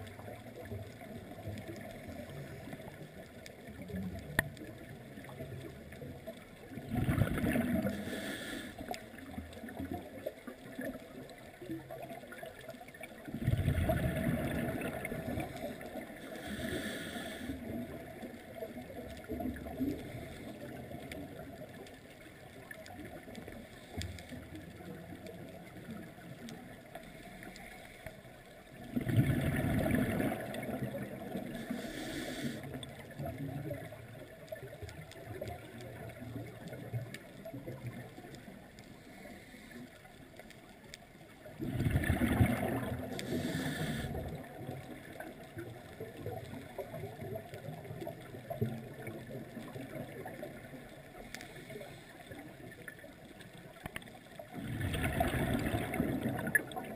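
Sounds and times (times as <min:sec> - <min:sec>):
exhaled bubbles gurgling: 0:00.0 - 0:56.9
regulator hiss on inhale: 0:07.8 - 0:09.2, 0:15.3 - 0:17.8, 0:19.9 - 0:20.8, 0:23.5 - 0:24.4, 0:27.0 - 0:28.4, 0:31.4 - 0:32.9, 0:38.9 - 0:40.1, 0:43.0 - 0:44.5, 0:51.2 - 0:52.5
low underwater rumble: 0:28.6 - 0:56.9.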